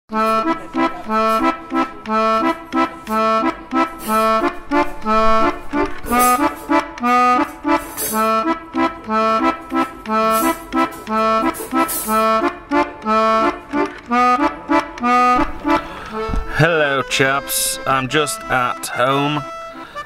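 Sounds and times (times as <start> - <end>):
accordion waltz: 0.1 - 20.0.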